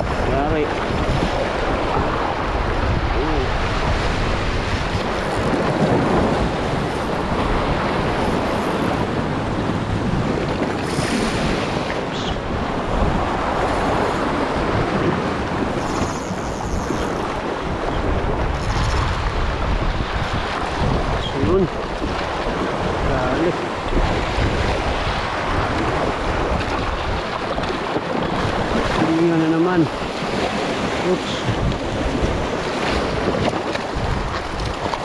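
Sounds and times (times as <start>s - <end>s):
surf washing against rocks: 0.0s - 35.0s
wind buffeting microphone: 0.0s - 35.0s.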